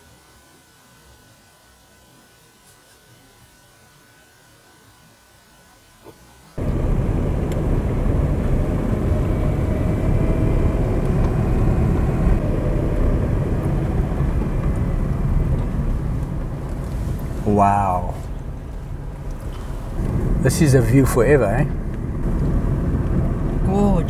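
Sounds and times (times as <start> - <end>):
faint steady whine: 0.0 - 24.0
vehicle driving on road: 6.6 - 24.0.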